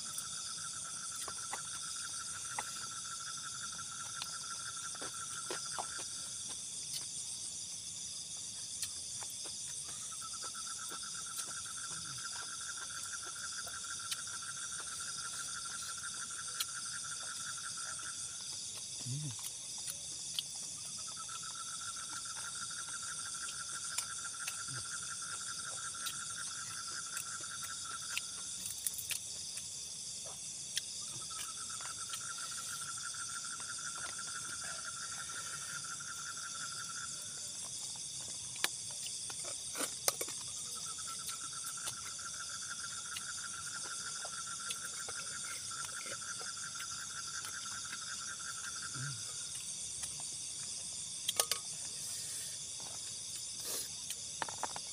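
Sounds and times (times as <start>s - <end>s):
crickets buzzing: 0.0s - 54.9s.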